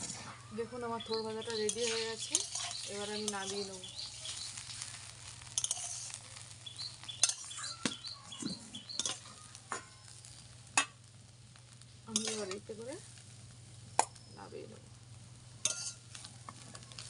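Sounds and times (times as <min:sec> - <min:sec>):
spatula scraping in wok: 0:00.0 - 0:11.0, 0:11.6 - 0:13.5, 0:15.6 - 0:17.0
light sizzle: 0:00.0 - 0:17.0
spatula clinking against pan: 0:01.1 - 0:04.6, 0:05.4 - 0:06.2, 0:07.0 - 0:08.1, 0:08.8 - 0:10.0, 0:15.6 - 0:16.1.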